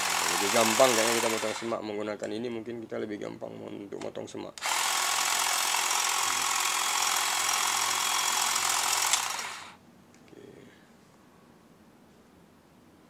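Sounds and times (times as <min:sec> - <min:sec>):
cordless shrub shears buzzing: 0:00.0 - 0:01.8, 0:04.6 - 0:09.8.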